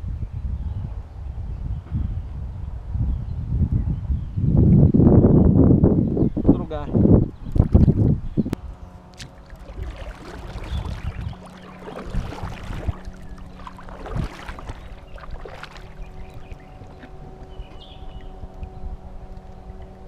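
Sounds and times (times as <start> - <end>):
faint steady hum: 0.4 - 20.0
paddle splashing in water: 9.1 - 17.5
water dripping: 9.2 - 16.5.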